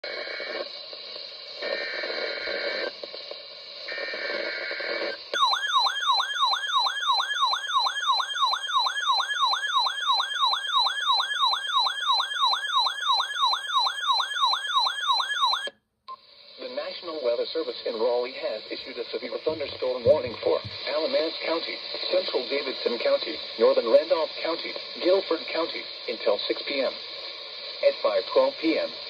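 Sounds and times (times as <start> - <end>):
weather radio alarm warbling: 3.9 - 15.7, 19.4 - 21.5.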